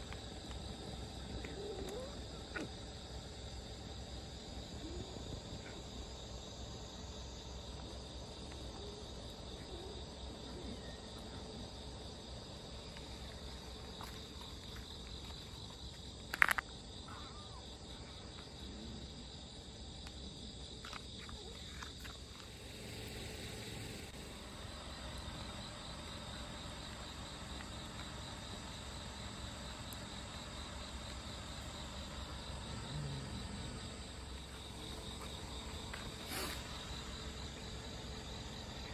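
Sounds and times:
insect trilling: 0:00.1 - 0:06.3, 0:12.6 - 0:18.2, 0:20.8 - 0:38.9.

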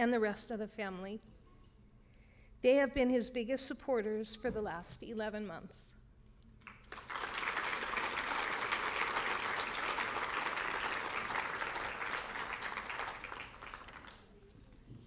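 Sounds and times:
audience applauding: 0:06.6 - 0:14.4.

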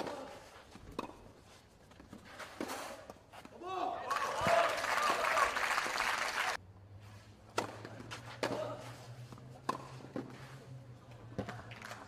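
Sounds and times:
tennis ball bouncing: 0:00.0 - 0:01.4, 0:07.5 - 0:10.6
crowd applause: 0:04.1 - 0:06.6
tennis ball struck with rackets: 0:07.5 - 0:10.4.

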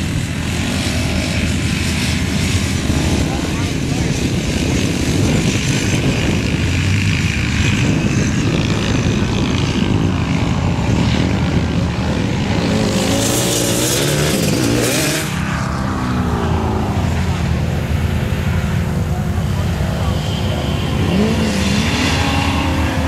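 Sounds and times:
pickup truck engine revving: 0:18.9 - 0:23.0.

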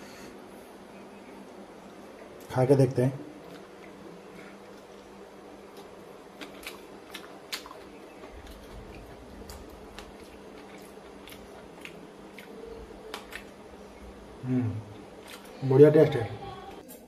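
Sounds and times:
man chewing: 0:03.4 - 0:15.6.

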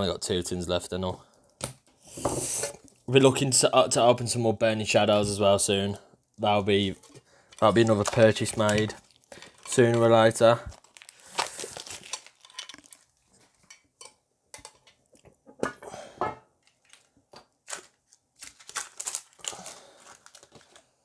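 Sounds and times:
plastic wrap crinkling: 0:06.4 - 0:13.7, 0:16.6 - 0:21.0
shrink-wrap being cut: 0:10.7 - 0:13.0.

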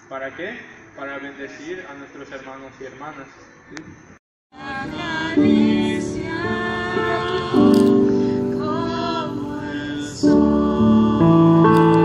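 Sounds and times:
women singing a slow song: 0:04.5 - 0:12.0
sustained keyboard chords: 0:04.6 - 0:12.0.

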